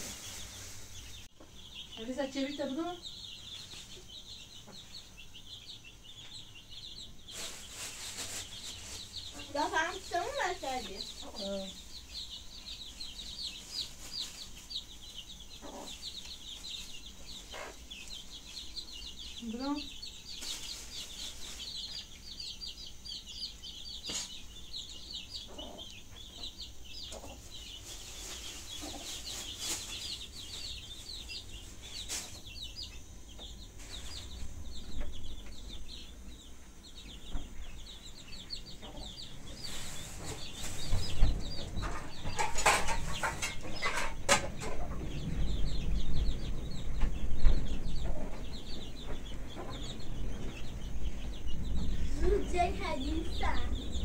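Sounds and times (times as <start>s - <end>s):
birds chirping: 0.0s - 54.0s
low rumble: 44.8s - 54.0s.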